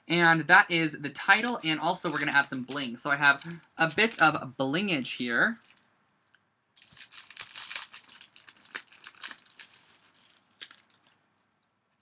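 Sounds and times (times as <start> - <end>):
rhinestone sheet crinkling: 1.4 - 4.4, 6.8 - 11.2.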